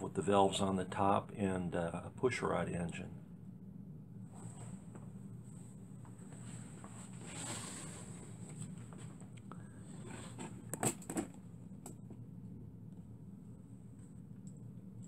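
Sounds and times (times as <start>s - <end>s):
steady low hum: 0.0s - 15.0s
soft handling rustle: 4.2s - 10.7s.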